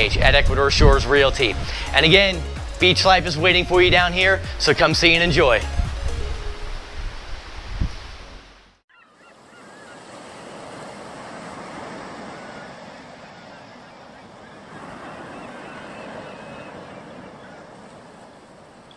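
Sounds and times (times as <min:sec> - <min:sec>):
birds calling: 0:08.9 - 0:18.9
surf washing on beach: 0:09.4 - 0:18.9.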